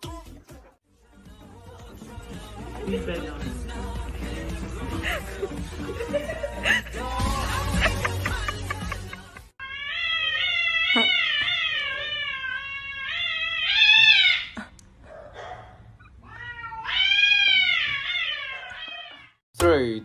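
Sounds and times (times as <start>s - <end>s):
cat yowling: 9.6s - 14.6s, 16.1s - 19.4s.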